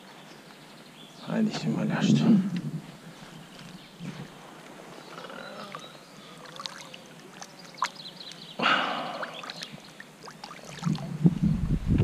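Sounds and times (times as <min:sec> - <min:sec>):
faint river water: 0:00.0 - 0:11.6
water splash: 0:06.4 - 0:11.3.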